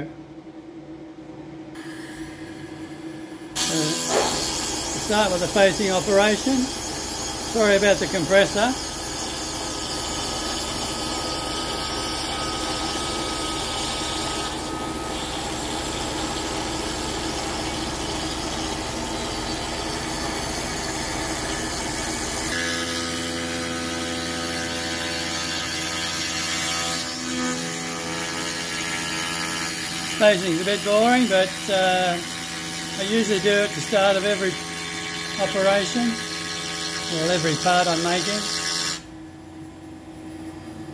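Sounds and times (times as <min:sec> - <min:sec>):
air compressor rumble: 0:01.7 - 0:22.6
router bit cutting wood: 0:03.6 - 0:39.1
router spindle running: 0:03.6 - 0:39.1.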